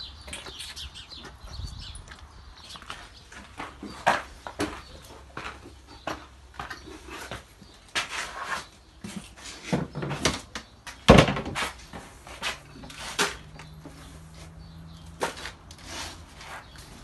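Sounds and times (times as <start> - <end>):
bin and plastic tub clattering: 9.1 - 11.8
feed scooping rustle: 15.2 - 17.0.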